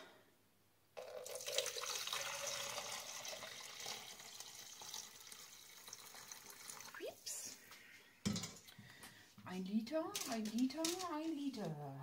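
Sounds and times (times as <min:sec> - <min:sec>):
liquid pouring from metal bowl: 0:01.0 - 0:07.0.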